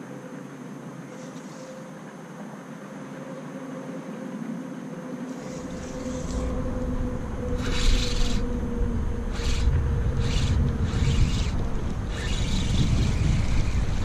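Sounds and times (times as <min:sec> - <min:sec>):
low hum: 0:00.0 - 0:14.0
fishing reel whirring: 0:01.1 - 0:01.9, 0:05.3 - 0:14.0
wind rumble on microphone: 0:03.8 - 0:14.0.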